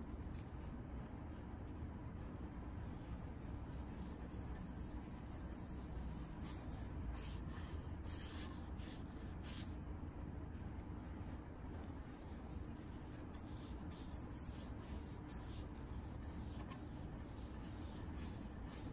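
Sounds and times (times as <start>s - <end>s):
steady low hum: 0.0s - 18.9s
foam brush strokes: 3.0s - 9.8s, 11.8s - 18.9s.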